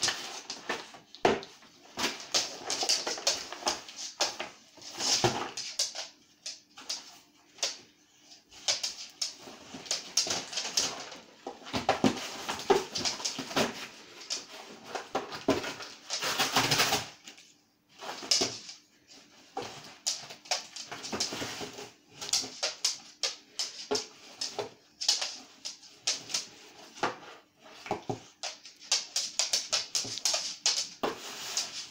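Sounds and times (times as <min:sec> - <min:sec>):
cardboard scraping on floor: 0:00.0 - 0:05.9, 0:09.4 - 0:17.2, 0:19.3 - 0:22.7, 0:29.8 - 0:31.9.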